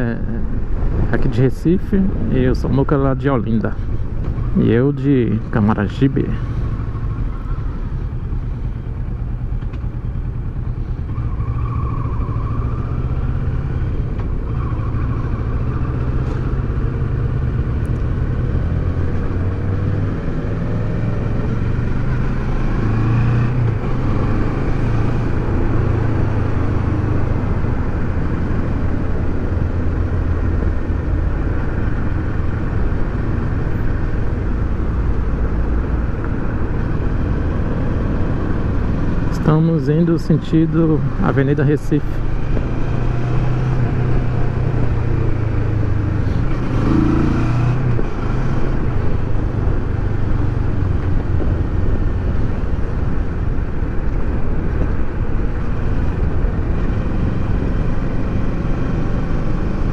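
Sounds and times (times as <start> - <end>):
road and wind noise: 0.0 - 59.9
motorcycle engine running: 6.4 - 11.4.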